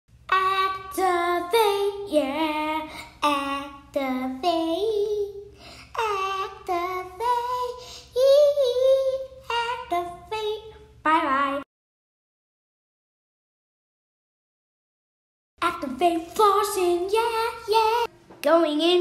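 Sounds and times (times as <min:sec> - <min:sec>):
child singing: 0:00.3 - 0:11.7, 0:15.6 - 0:19.0.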